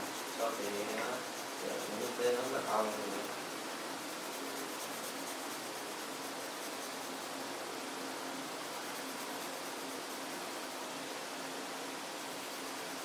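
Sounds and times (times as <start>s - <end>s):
pencil scratching on paper: 0.0s - 7.4s, 8.5s - 10.6s, 12.3s - 13.0s.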